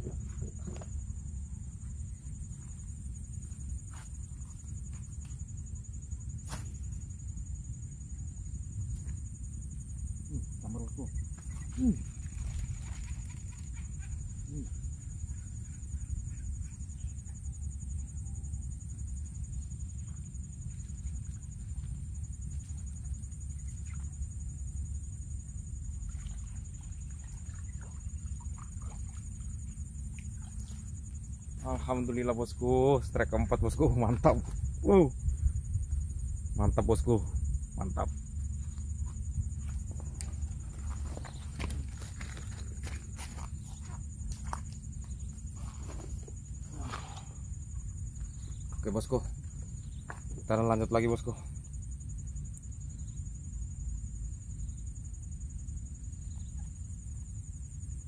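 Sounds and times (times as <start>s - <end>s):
high-pitched insect buzz: 0.0s - 32.3s
crickets trilling: 0.0s - 58.0s
low rumble: 33.3s - 42.1s.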